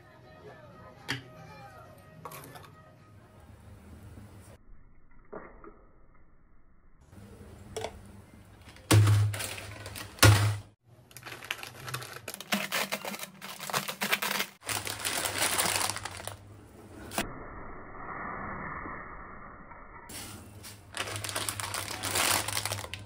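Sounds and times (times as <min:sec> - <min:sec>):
plastic wrappers crinkling: 0:08.6 - 0:16.4, 0:20.6 - 0:23.0.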